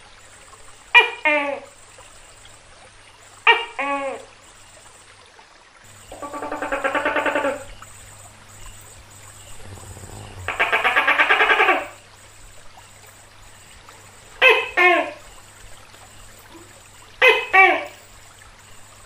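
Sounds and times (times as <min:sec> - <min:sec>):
gecko croaking rattle: 0:08.6 - 0:12.0.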